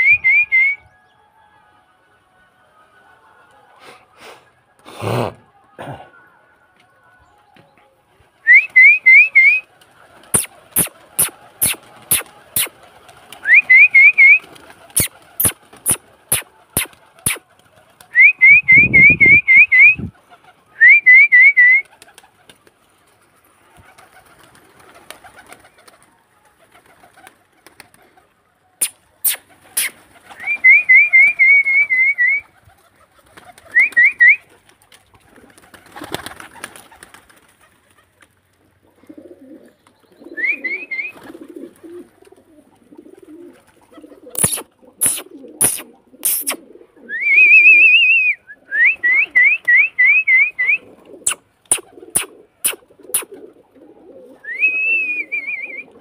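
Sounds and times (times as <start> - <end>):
quick rising whistles: 10.3 - 12.7, 15.0 - 17.4.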